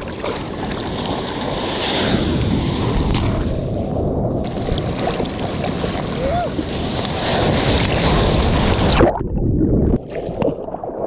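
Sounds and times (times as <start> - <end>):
sea water sloshing around surfboard: 0.0 - 3.8, 4.4 - 9.2
wind buffeting microphone: 0.0 - 10.1.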